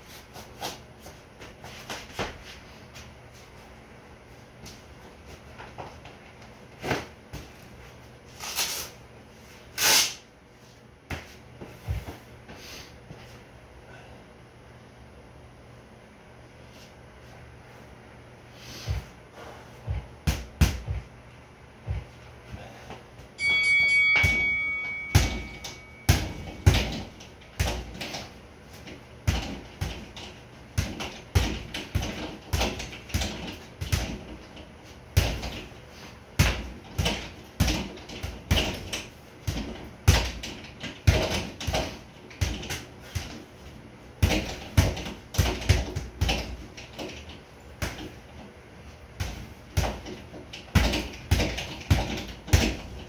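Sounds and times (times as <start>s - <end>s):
boxing gloves hitting bag: 19.8s - 21.1s, 23.4s - 34.5s, 35.1s - 35.7s, 36.4s - 43.5s, 44.2s - 46.7s, 49.2s - 53.0s
short electronic beep: 23.4s - 26.4s.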